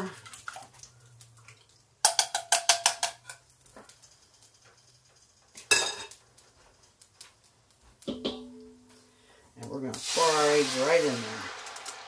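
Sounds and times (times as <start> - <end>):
whisk clinking in metal bowl: 2.0 - 3.4
metal clank: 8.1 - 8.9.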